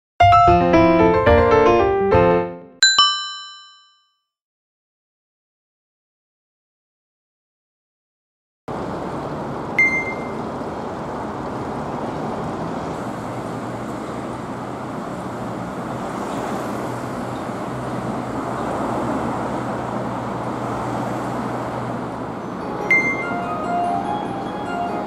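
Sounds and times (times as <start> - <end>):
road traffic rushing: 8.7 - 25.0.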